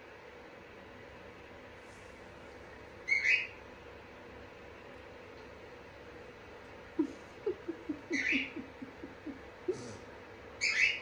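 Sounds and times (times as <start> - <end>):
cockatoo chuckling notes: 6.9 - 10.0
cockatoo harsh squawks: 8.1 - 8.6.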